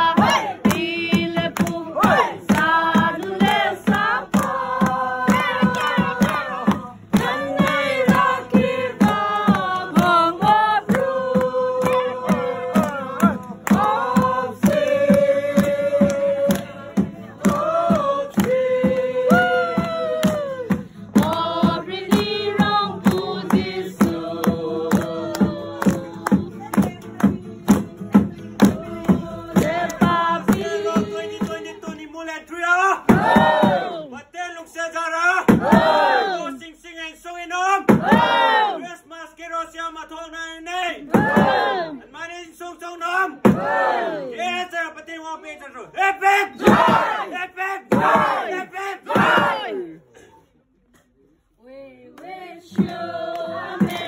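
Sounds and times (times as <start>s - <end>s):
carolers singing in chorus: 0.0s - 26.6s, 27.7s - 31.9s, 52.2s - 54.0s
steady percussive beat: 0.0s - 32.1s, 33.1s - 34.0s, 35.5s - 36.2s, 37.9s - 38.6s, 41.1s - 41.8s, 46.6s - 47.2s, 47.9s - 48.5s, 49.1s - 49.7s, 52.7s - 54.0s.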